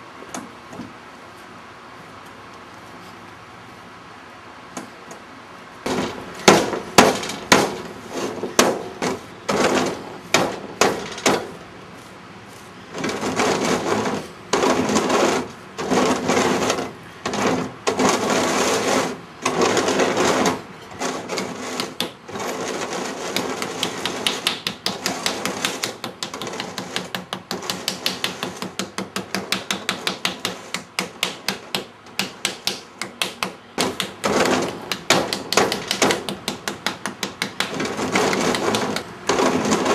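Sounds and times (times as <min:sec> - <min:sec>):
harsh scrapes: 0:05.8 - 0:31.8, 0:33.8 - 0:36.3, 0:37.2 - 0:39.9.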